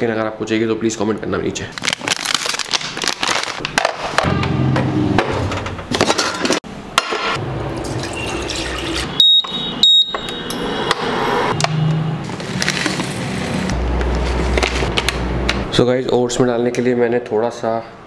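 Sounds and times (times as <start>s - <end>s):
water pouring into saucepan: 7.8s - 9.1s
short high beeps: 9.1s - 10.6s.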